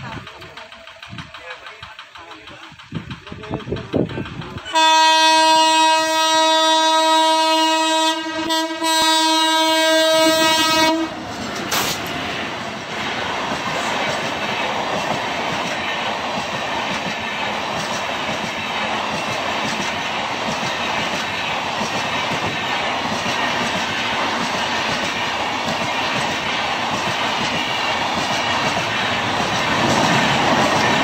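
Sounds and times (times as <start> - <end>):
train passing roar: 0.0 - 31.0
train horn blast: 4.7 - 11.2.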